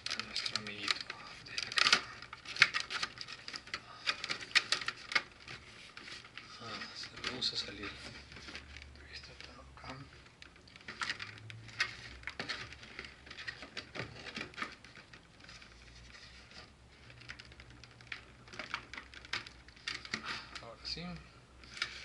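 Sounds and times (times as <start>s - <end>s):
plastic and cardboard packaging crackling: 0.0s - 22.0s.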